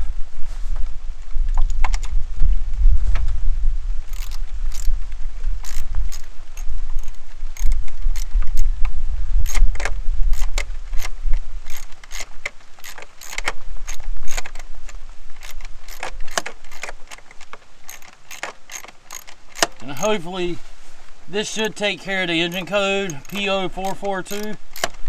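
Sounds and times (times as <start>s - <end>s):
low rumble: 0.0s - 12.0s
socket ratchet clicking: 4.1s - 4.9s, 5.6s - 8.4s, 9.4s - 20.2s, 22.5s - 25.0s.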